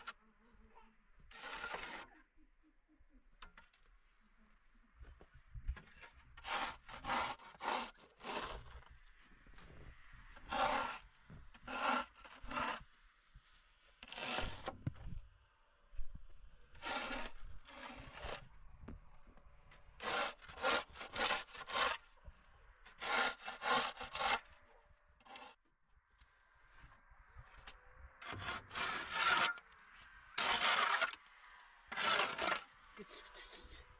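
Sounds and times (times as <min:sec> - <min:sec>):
shovel scraping snow off concrete: 0:01.3 - 0:02.1, 0:06.0 - 0:08.9, 0:10.4 - 0:11.0, 0:11.6 - 0:12.9, 0:14.0 - 0:14.8, 0:16.7 - 0:18.5, 0:20.0 - 0:22.1, 0:22.9 - 0:24.6, 0:25.2 - 0:25.6, 0:28.2 - 0:29.7, 0:30.4 - 0:31.2, 0:31.9 - 0:32.7.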